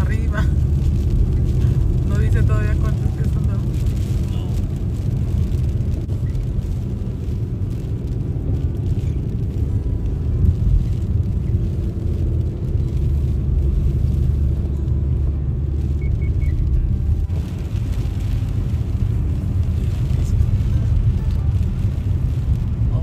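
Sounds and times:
car driving on wet pavement: 0:00.0 - 0:23.0.

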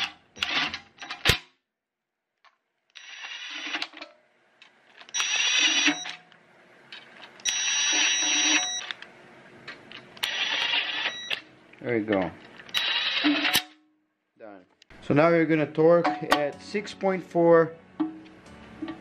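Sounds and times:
impact wrench driving bolts: 0:00.0 - 0:01.4, 0:12.7 - 0:13.8.

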